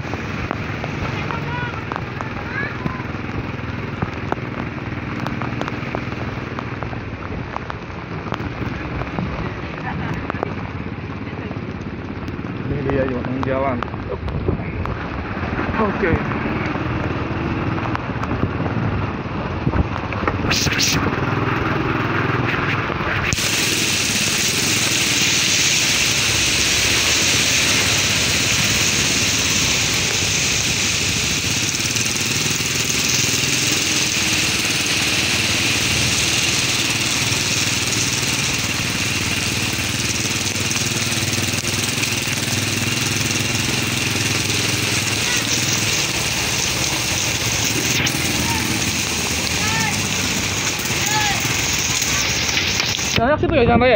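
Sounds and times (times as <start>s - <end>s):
motorcycle engine running: 0.0s - 53.9s
constant hiss: 23.4s - 53.9s.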